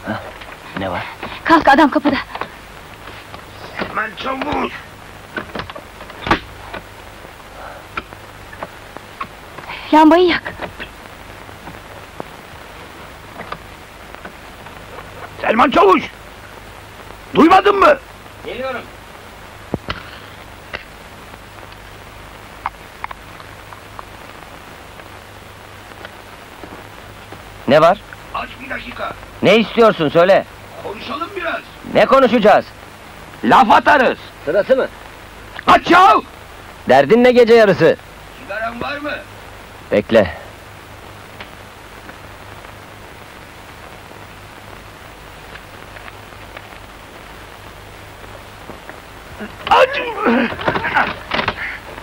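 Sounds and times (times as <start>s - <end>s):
steady hiss: 0.0s - 52.0s
faint light ticks: 22.6s - 24.1s.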